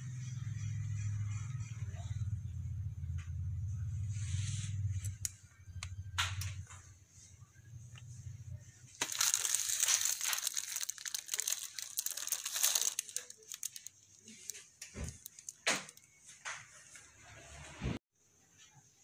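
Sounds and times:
plastic wrapping crinkling: 0:08.9 - 0:16.3.

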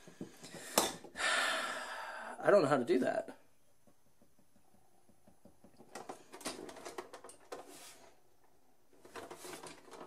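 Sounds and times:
plastic parts clicking and rattling: 0:05.3 - 0:07.7, 0:09.0 - 0:10.0.

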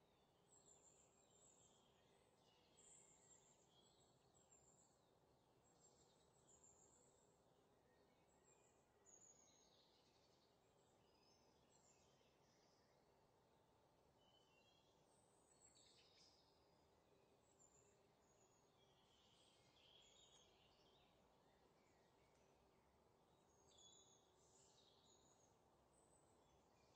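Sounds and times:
faint high bird chirps: 0:00.0 - 0:05.0, 0:14.2 - 0:16.8, 0:17.4 - 0:22.6, 0:23.3 - 0:26.9.

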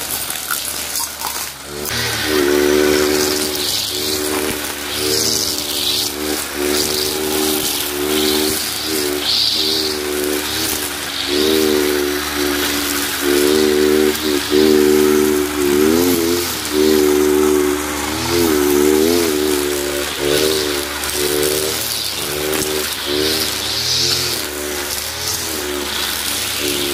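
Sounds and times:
brush cutter engine running: 0:00.0 - 0:26.9.

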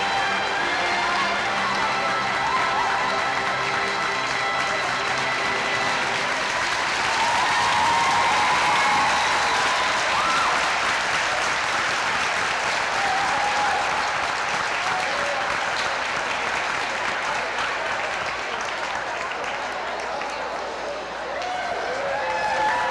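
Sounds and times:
crowd applauding: 0:00.0 - 0:22.9.

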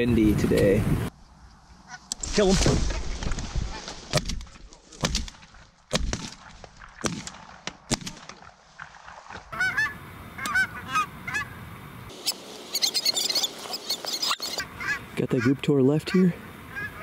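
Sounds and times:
geese honking overhead: 0:01.8 - 0:02.1, 0:08.4 - 0:17.0
shotgun shots: 0:05.0 - 0:08.4.

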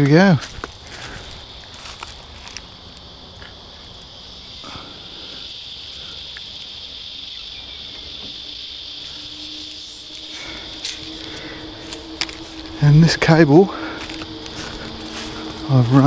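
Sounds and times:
insects buzzing shrilly: 0:00.0 - 0:16.0.

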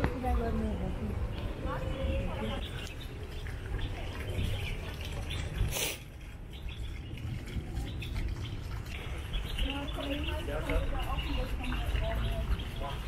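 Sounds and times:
steady low rumble: 0:00.0 - 0:13.0
fountain water splashing: 0:02.6 - 0:13.0
short sharp hiss: 0:05.7 - 0:06.0.

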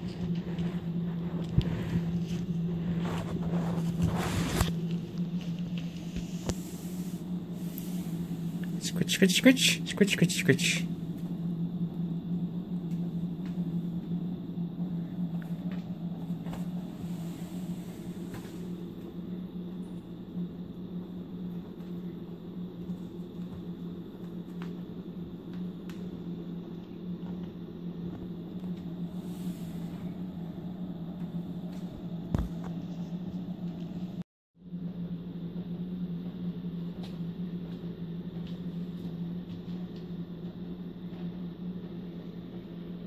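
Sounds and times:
low room hum: 0:00.0 - 0:43.0.

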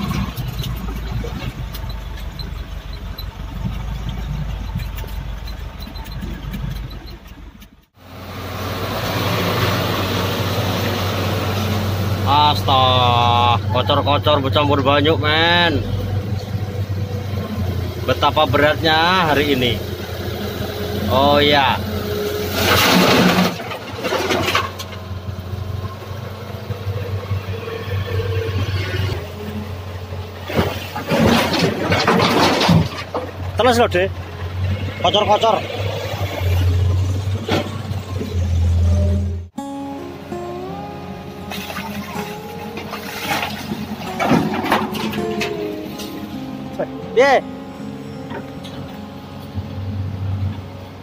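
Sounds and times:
diesel truck engine running: 0:00.0 - 0:51.0
soil dumped into truck bed: 0:22.5 - 0:25.0, 0:30.4 - 0:33.4, 0:41.5 - 0:45.6
cab rattles and knocks: 0:30.5 - 0:33.7.

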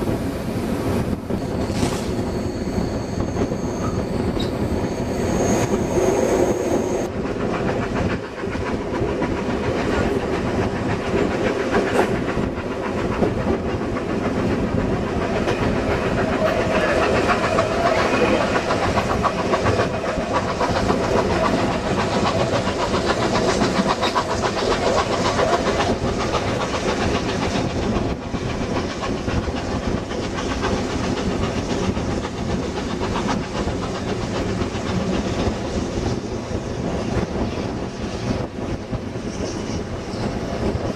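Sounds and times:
train wheels on rails: 0:00.0 - 0:40.9
thin high whine: 0:01.3 - 0:07.1.

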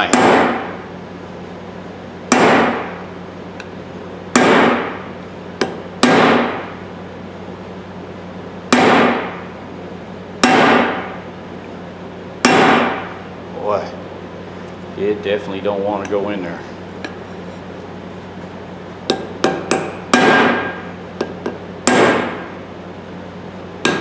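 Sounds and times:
hammer striking metal punch: 0:00.0 - 0:00.8, 0:02.3 - 0:03.0, 0:04.3 - 0:05.0, 0:05.6 - 0:06.7, 0:08.7 - 0:09.4, 0:10.4 - 0:11.2, 0:12.4 - 0:13.2, 0:19.1 - 0:22.5.

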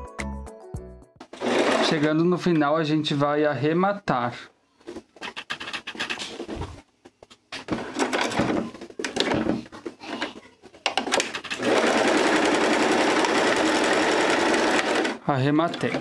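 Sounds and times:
sewing machine stitching: 0:01.4 - 0:02.2, 0:11.0 - 0:16.0.

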